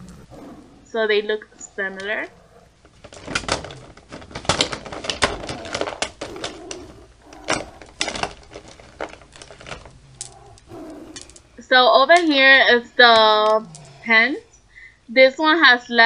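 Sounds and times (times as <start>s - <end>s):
makeup products clattering: 2.8s - 13.9s.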